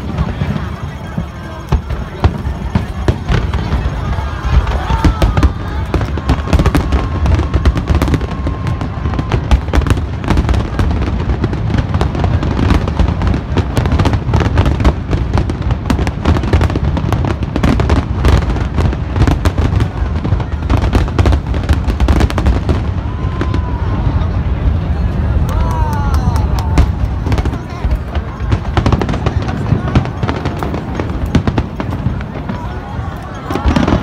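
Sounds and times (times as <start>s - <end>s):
firework shell bursts crackling: 26.4s - 34.0s.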